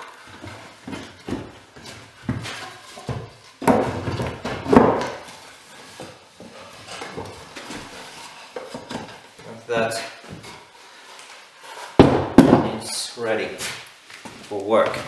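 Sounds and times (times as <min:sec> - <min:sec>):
wooden legs knocking and scraping: 0:00.2 - 0:10.6, 0:12.0 - 0:12.9.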